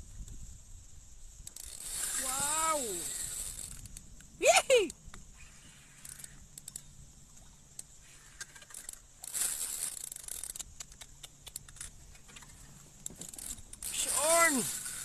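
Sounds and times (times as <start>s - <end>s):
fishing reel clicks and rattles: 1.4s - 4.2s, 5.5s - 7.0s, 7.7s - 15.0s.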